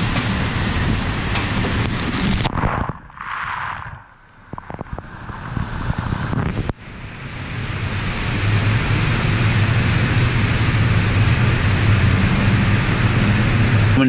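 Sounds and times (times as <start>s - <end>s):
low hum: 1.8s - 14.0s
water spray jets rushing: 5.6s - 14.0s.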